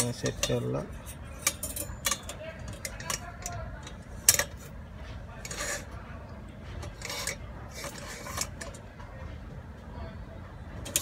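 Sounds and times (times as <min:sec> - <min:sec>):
metal basket clinking on pot: 0:00.0 - 0:04.6
wire scraping on metal: 0:00.0 - 0:08.9.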